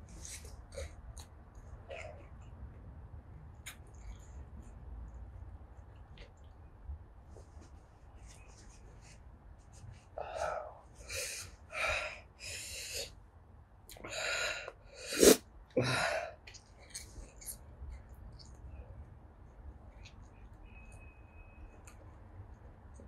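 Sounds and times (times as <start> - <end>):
person blowing nose: 15.0 - 15.4
person sniffing: 15.0 - 16.2.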